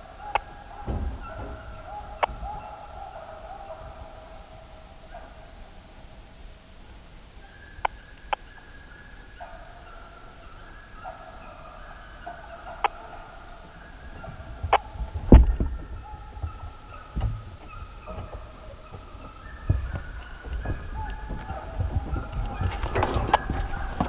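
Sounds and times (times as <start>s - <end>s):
distant hounds baying: 0.0s - 24.0s
low thumps: 0.3s - 3.1s, 14.1s - 24.0s.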